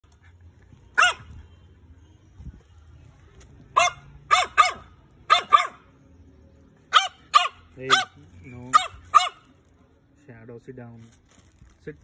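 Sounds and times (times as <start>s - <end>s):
puppy yapping: 1.0s - 1.3s, 3.7s - 5.8s, 6.9s - 9.6s.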